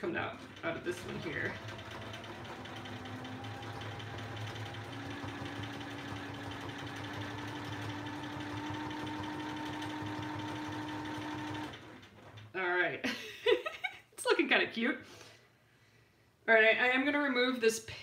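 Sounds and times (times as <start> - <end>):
sewing machine stitching: 0.0 - 12.6.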